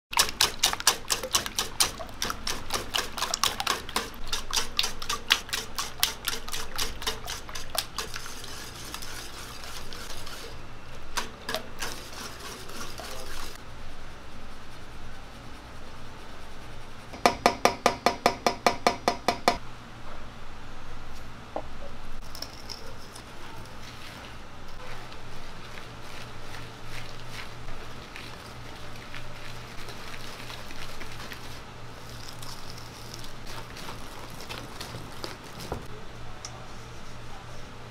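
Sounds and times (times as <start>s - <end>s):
whisk clinking in metal bowl: 0.2s - 10.5s.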